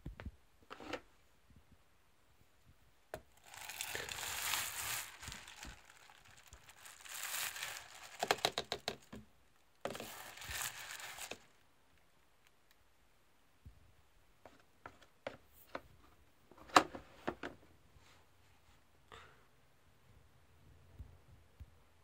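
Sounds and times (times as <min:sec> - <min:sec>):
plastic bag crinkling: 0:03.3 - 0:09.2, 0:09.8 - 0:11.6.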